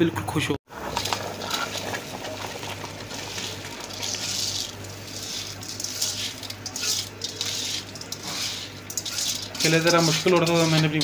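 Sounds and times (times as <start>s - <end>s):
rice grains pouring into pot: 0.7s - 11.0s.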